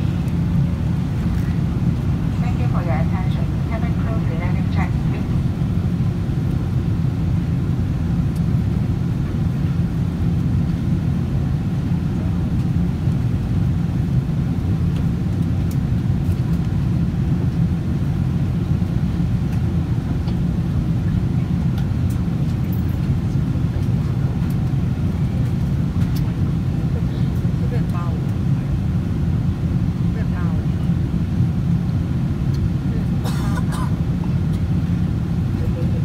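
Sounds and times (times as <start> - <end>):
airliner cabin engine rumble: 0.0 - 36.0.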